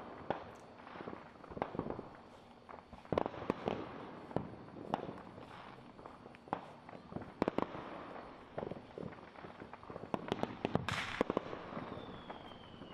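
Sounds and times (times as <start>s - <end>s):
fireworks bangs and pops: 0.0s - 12.9s
fireworks crackling hiss: 0.0s - 12.9s.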